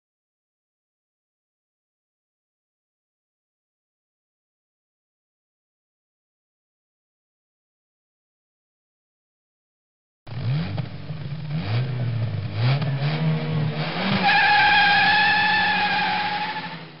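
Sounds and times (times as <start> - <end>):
car engine revving: 10.3 - 17.0
tyre squealing: 14.1 - 17.0.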